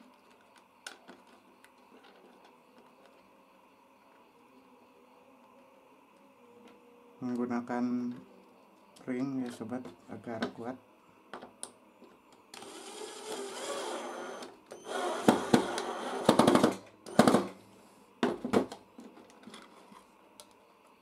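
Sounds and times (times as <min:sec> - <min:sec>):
cordless drill driving screw: 0:12.6 - 0:16.4.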